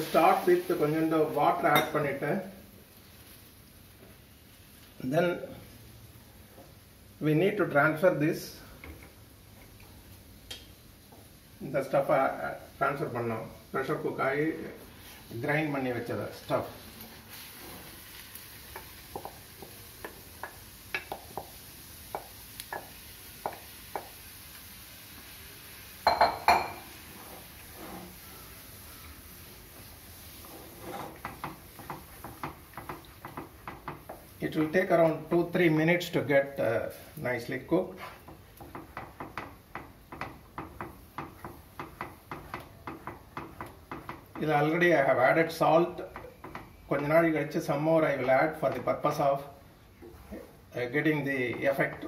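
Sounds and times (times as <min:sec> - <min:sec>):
plate tapping against frying pan: 0:18.8 - 0:21.5, 0:26.0 - 0:26.8
spoon scraping a frying pan: 0:26.1 - 0:28.2, 0:30.2 - 0:34.2.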